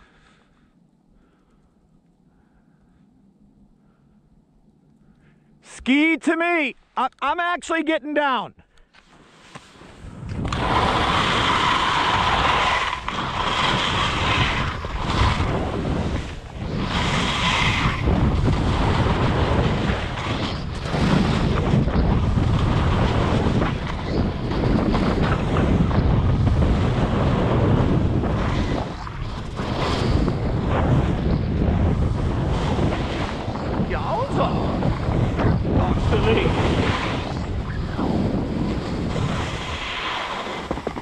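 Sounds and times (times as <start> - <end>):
skis scraping over snow: 9.0 - 41.0
wind buffeting microphone: 9.8 - 41.0.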